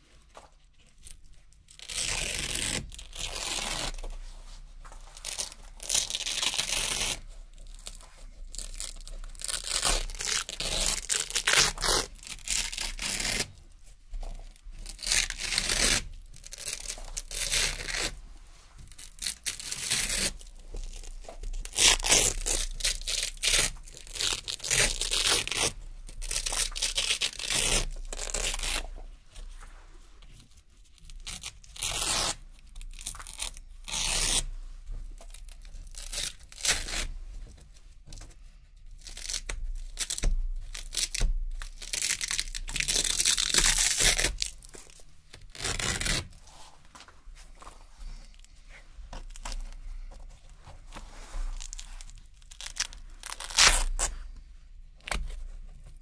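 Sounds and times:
velcro strips tearing: 1.0 - 4.2, 5.1 - 13.6, 14.4 - 18.2, 18.9 - 28.9, 30.9 - 34.5, 35.2 - 37.1, 39.0 - 46.6, 49.1 - 50.1, 50.9 - 54.2, 55.0 - 55.5.

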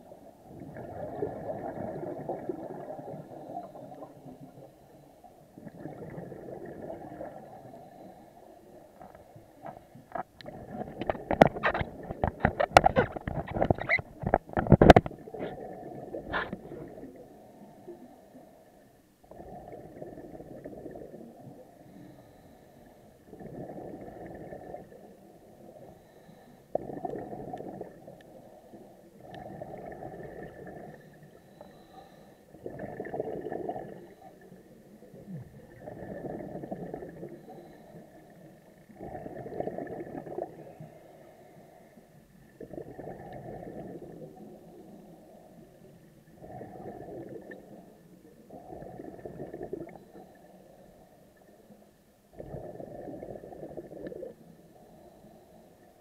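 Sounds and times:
diver exhaling bubbles underwater: 0.5 - 4.6, 5.6 - 8.0, 19.3 - 22.1, 23.3 - 25.9, 26.8 - 28.4, 29.2 - 31.1, 32.6 - 37.8, 38.9 - 40.9, 42.5 - 45.6, 46.3 - 50.1, 52.3 - 55.2.

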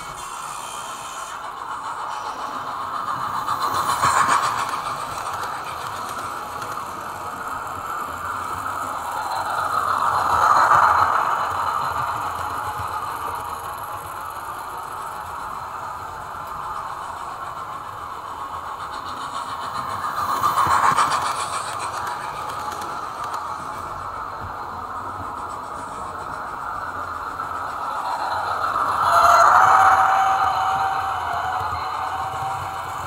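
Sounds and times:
model trains whirring: 0.0 - 33.0.

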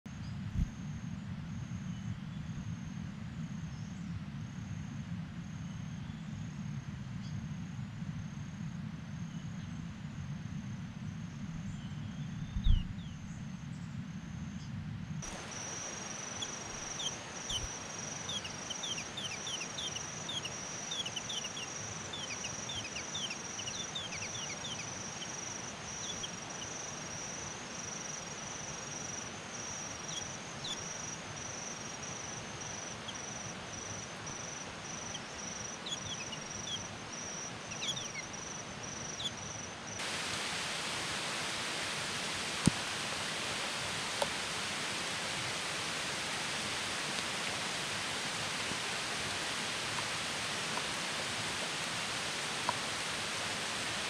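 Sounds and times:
low hum: 0.2 - 3.4, 10.4 - 13.7
small birds chirping: 11.6 - 13.3, 15.2 - 39.9
insect trilling: 15.2 - 39.7.

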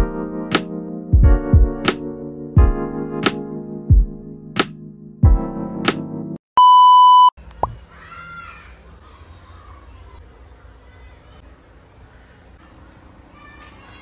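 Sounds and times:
test-tone beep: 6.6 - 7.4.

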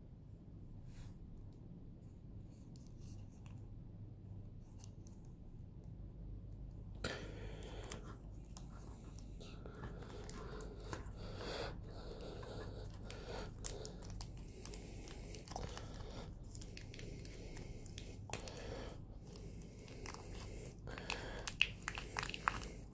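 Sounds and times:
plastic wrap crinkling: 20.9 - 22.9.

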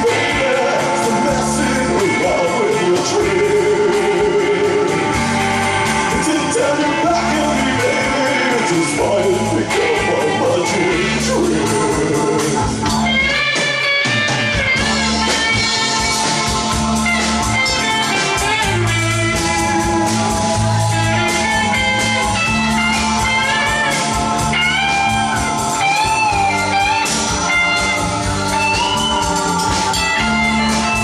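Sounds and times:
bass guitar: 0.0 - 31.0
drum kit: 0.0 - 31.0
electric guitar lead with bent notes: 0.0 - 31.0
keyboard: 0.0 - 31.0.

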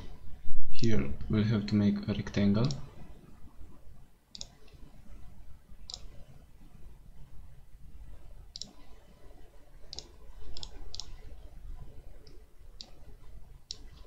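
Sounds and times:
low room hum: 0.0 - 14.0
computer mouse button clicking: 4.4 - 4.6, 8.6 - 8.8.

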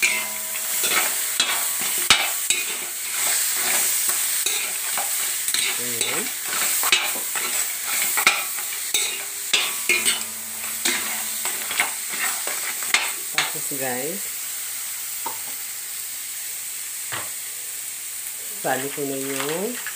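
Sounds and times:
spatula scraping and knocking pan: 0.0 - 13.6
crabs sizzling in a wok: 0.0 - 19.9.

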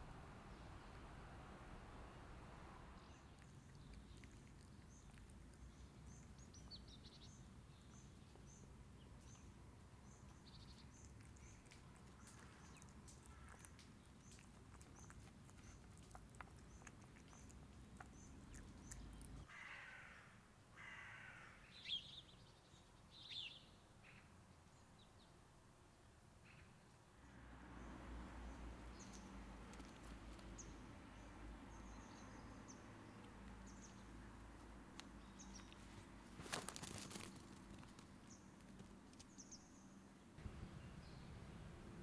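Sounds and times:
faint high bird chirp: 21.6 - 25.4.

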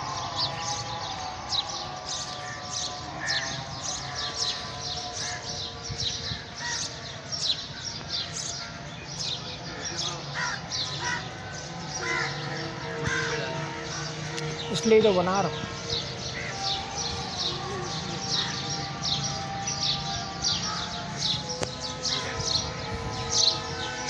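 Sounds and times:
small birds chirping: 0.0 - 24.0
crows cawing: 1.9 - 5.7, 6.3 - 14.8, 15.5 - 19.2.

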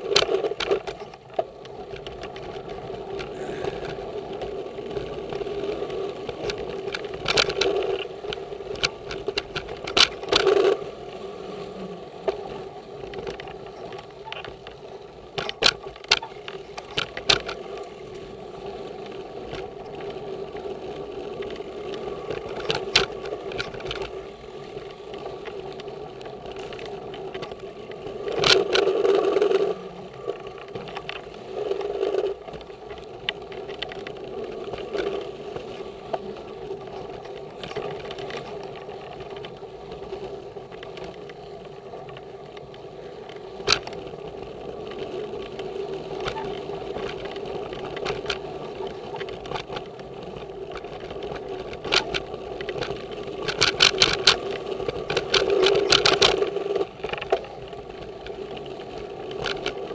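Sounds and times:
bike clicks and rattles: 0.0 - 59.9
bike tyre and wind noise: 0.0 - 59.9.

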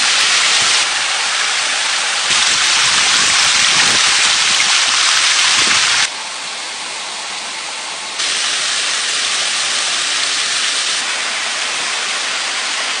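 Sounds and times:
stream running over rocks: 0.0 - 13.0.

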